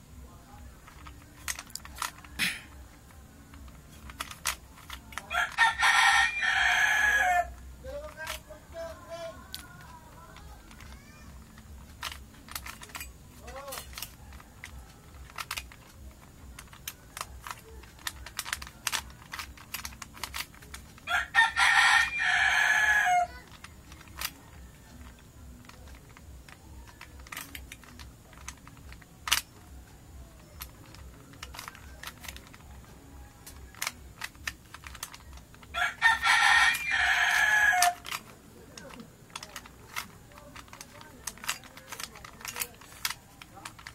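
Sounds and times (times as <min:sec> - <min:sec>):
puzzle cube clicking: 0:00.2 - 0:43.9
rooster crowing: 0:05.2 - 0:07.6, 0:08.7 - 0:10.3, 0:21.0 - 0:23.4, 0:35.7 - 0:38.2.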